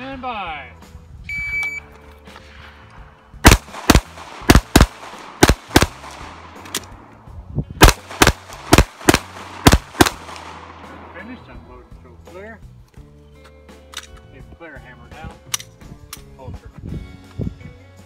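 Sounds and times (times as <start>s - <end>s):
pistol firing rapid shots: 3.4s - 6.6s, 7.8s - 10.8s.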